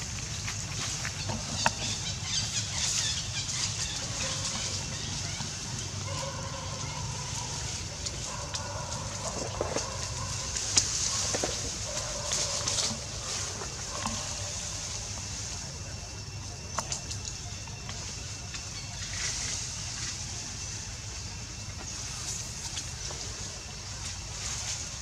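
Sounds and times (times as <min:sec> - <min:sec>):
steady high hiss: 0:10.3 - 0:25.0.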